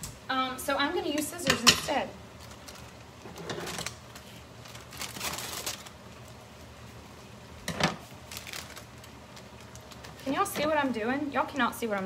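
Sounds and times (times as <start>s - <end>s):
plastic bag crinkling: 2.3s - 6.4s, 8.1s - 10.5s.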